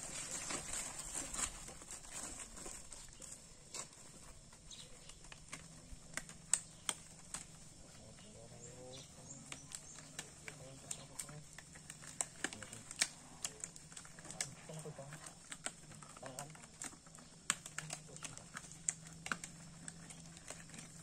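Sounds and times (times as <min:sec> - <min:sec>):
paper wrappers rustling: 0:00.0 - 0:21.0
clicks and snaps of packaging: 0:02.1 - 0:08.2, 0:09.0 - 0:21.0.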